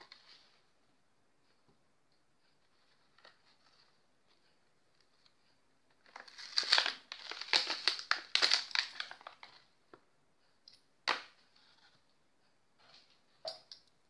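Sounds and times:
plastic packaging crinkling: 0:06.1 - 0:09.6.

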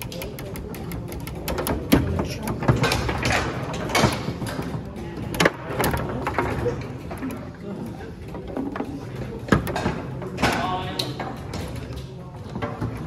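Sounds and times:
foosball ball clacking: 0:00.0 - 0:07.2
foosball rods rattling: 0:00.0 - 0:13.0.

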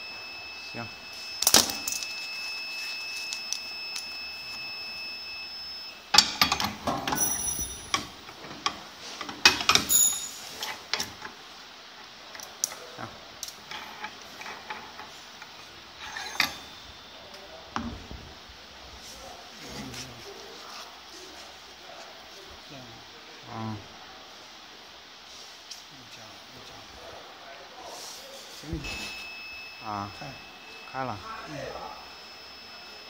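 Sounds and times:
machine high-pitched beep: 0:00.0 - 0:08.1, 0:28.6 - 0:33.0.

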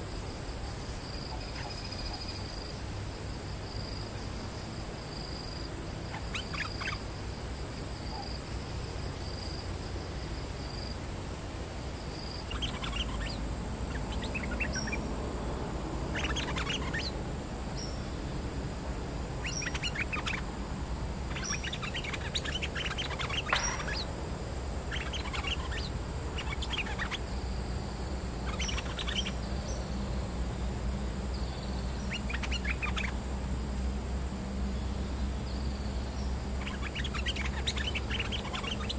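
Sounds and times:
faint high-pitched hum: 0:00.0 - 0:38.9
bulbuls chattering: 0:21.2 - 0:27.3.

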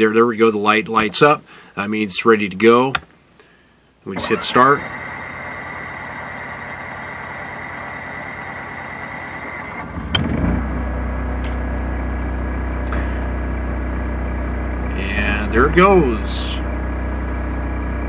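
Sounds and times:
generator cranking and running: 0:04.1 - 0:18.0.

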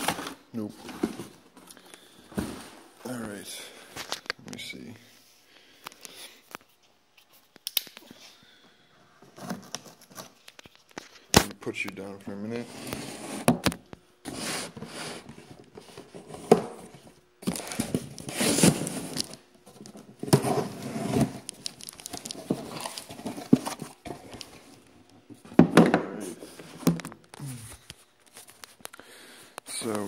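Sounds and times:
packaging crinkling and rustling: 0:17.4 - 0:25.2.

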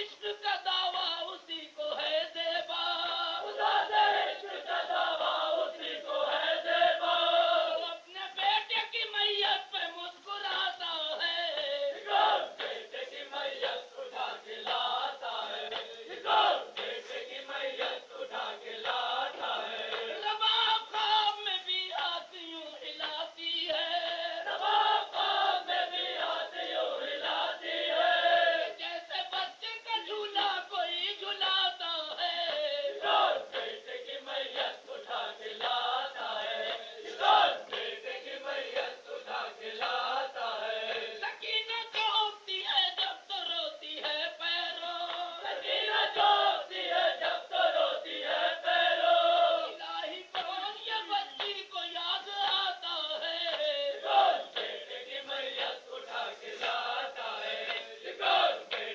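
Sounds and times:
voices chanting a mourning lament: 0:00.0 - 0:58.9.

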